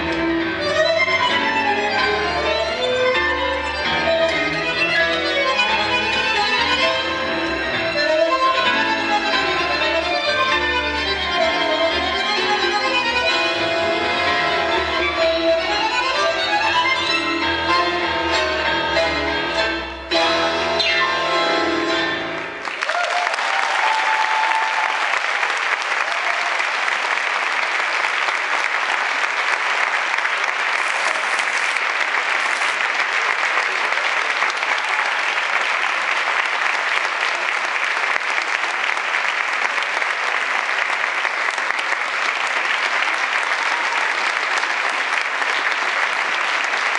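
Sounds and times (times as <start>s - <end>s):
tango music: 0.0s - 22.7s, 29.0s - 35.3s
audience applause: 22.6s - 46.9s.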